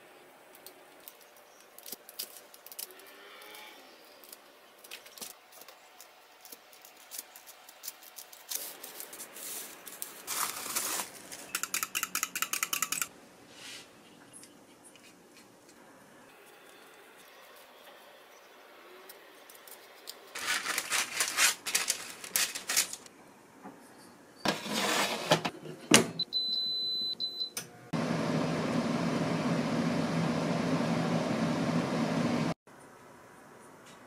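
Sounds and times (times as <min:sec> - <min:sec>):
air fryer fan humming: 0:26.3 - 0:32.6.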